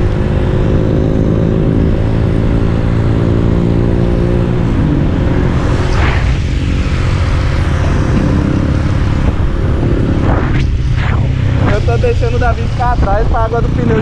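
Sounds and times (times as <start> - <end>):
motorcycle engine running: 0.0 - 14.0
wind rush: 3.8 - 14.0.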